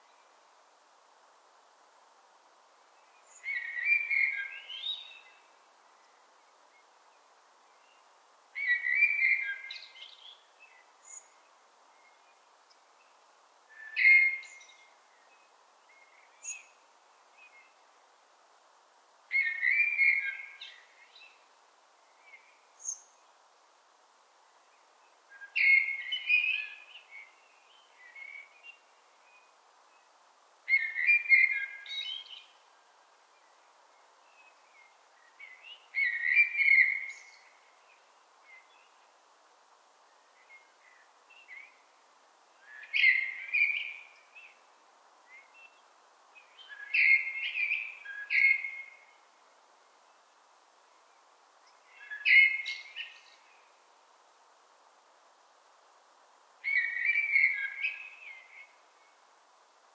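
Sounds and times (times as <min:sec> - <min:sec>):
faint background noise: 0:00.0 - 0:59.9
blackbird singing: 0:03.3 - 0:05.4, 0:19.3 - 0:21.3, 0:25.3 - 0:28.8, 0:35.4 - 0:37.5, 0:42.6 - 0:44.5, 0:46.5 - 0:49.1, 0:51.9 - 0:53.4, 0:56.6 - 0:58.7.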